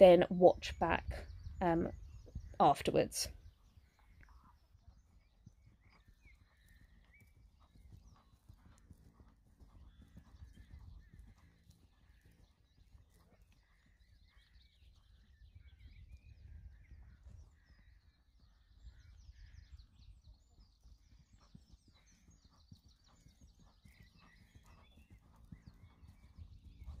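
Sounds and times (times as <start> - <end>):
small birds chirping: 0.0 - 27.0
hoofbeats on grass: 5.8 - 14.6, 21.5 - 27.0.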